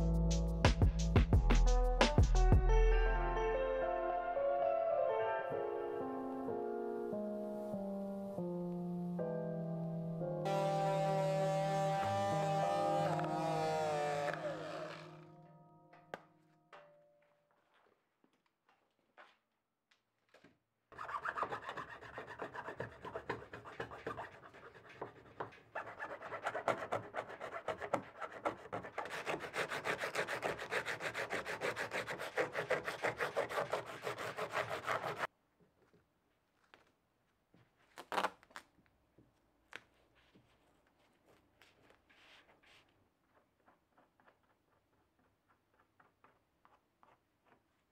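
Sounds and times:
hand scraper scraping hull: 0:10.5 - 0:15.3, 0:21.0 - 0:35.3.

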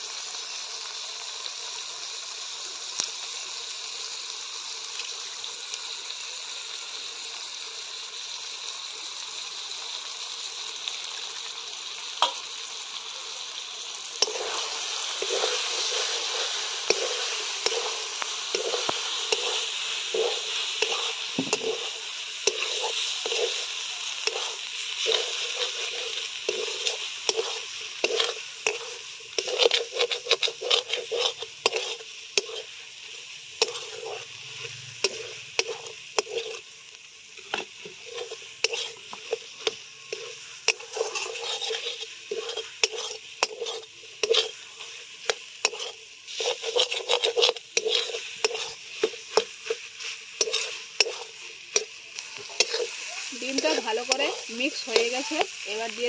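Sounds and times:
frying sizzle: 0:00.0 - 0:56.0
metal spatula scraping a pan: 0:14.2 - 0:36.7, 0:37.3 - 0:56.0.

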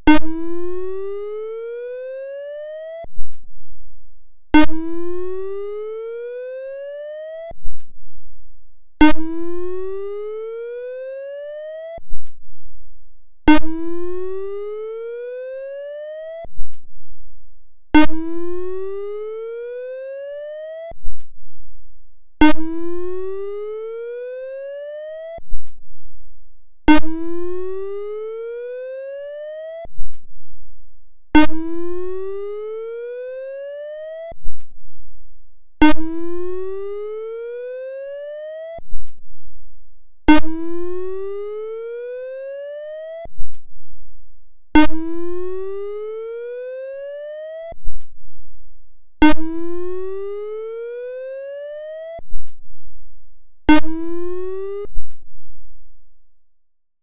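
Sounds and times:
sharp click: 0:07.7 - 0:08.0, 0:12.2 - 0:12.4, 0:16.6 - 0:16.9, 0:21.1 - 0:21.4, 0:25.6 - 0:25.8, 0:30.0 - 0:30.3, 0:34.5 - 0:34.8, 0:39.0 - 0:39.2, 0:43.4 - 0:43.7, 0:47.9 - 0:48.2, 0:52.4 - 0:52.6, 0:55.0 - 0:55.3.

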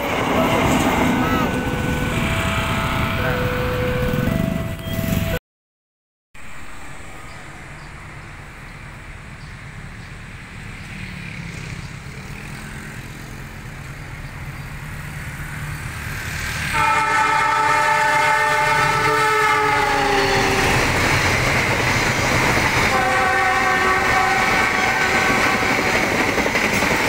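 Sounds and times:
train rumbling past: 0:00.0 - 0:05.4, 0:06.4 - 0:27.0
train horn blast: 0:00.2 - 0:05.4, 0:16.6 - 0:21.0, 0:22.8 - 0:26.2.

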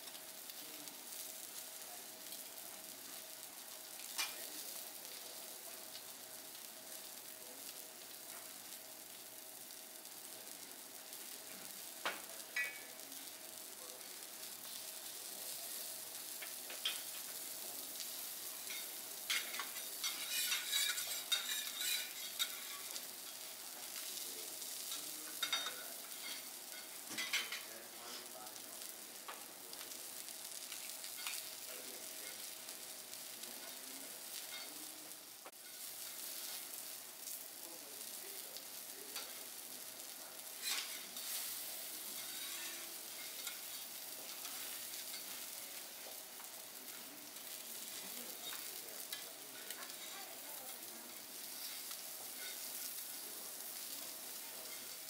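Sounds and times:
food sizzling on griddle: 0:00.0 - 0:55.0
metal spatulas scraping and clacking: 0:18.6 - 0:23.0, 0:40.6 - 0:41.4, 0:42.2 - 0:45.4.

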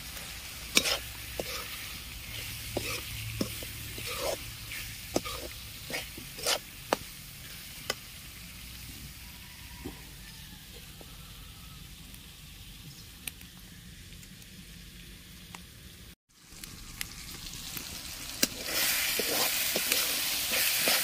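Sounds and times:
steady sizzle: 0:00.0 - 0:21.0
metal spoon scraping a pan: 0:00.2 - 0:08.0, 0:18.4 - 0:21.0.

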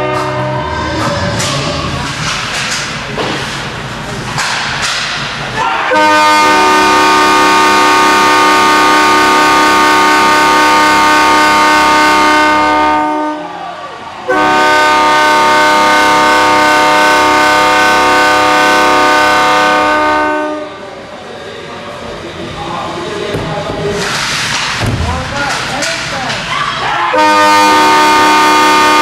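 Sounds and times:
goal horn blasts: 0:00.0 - 0:00.8, 0:05.9 - 0:13.4, 0:14.3 - 0:20.7, 0:27.2 - 0:29.0.

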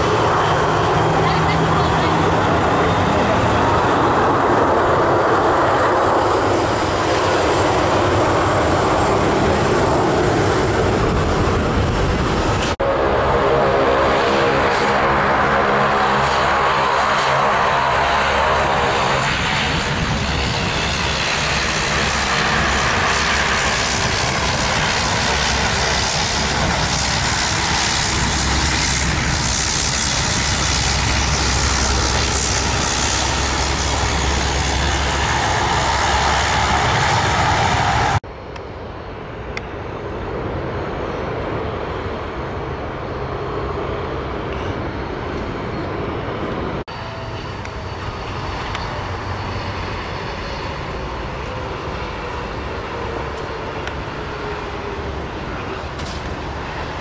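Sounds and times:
jet engine multi-tone hum: 0:00.0 - 0:57.0
jet engines roaring: 0:00.0 - 0:57.0.

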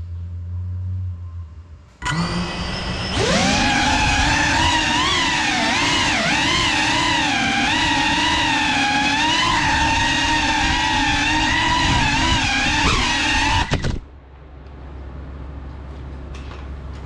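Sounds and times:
faint low hum: 0:00.0 - 0:02.1
drone motors whining: 0:02.0 - 0:14.1.

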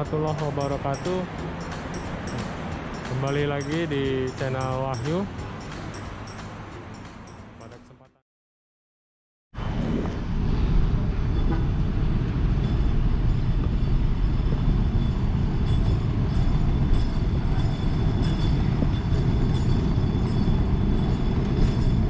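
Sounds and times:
cars moving: 0:00.0 - 0:07.9
low rumbling ambient noise: 0:09.6 - 0:22.0.

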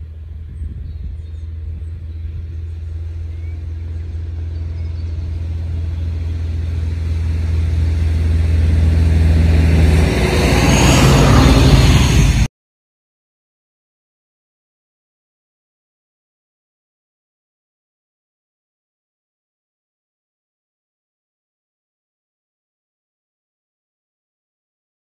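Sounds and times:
steady low rumble: 0:00.0 - 0:12.5
electric scooter passing: 0:01.4 - 0:12.5.

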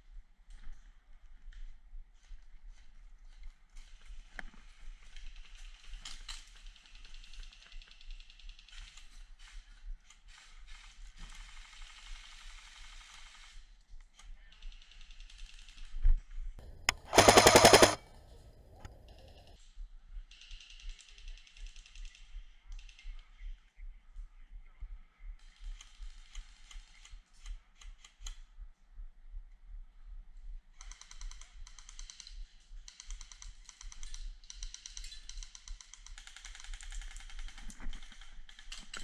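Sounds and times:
airsoft rifle full-auto burst: 0:16.6 - 0:18.4.

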